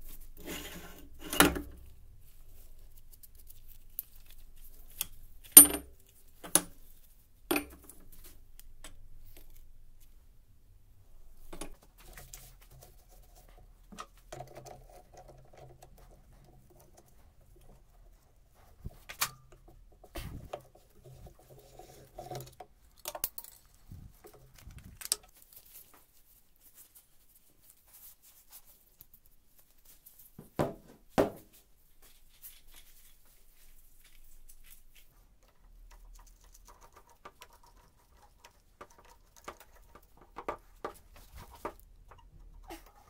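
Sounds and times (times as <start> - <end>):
metal parts clicking and scraping: 21.6 - 25.3.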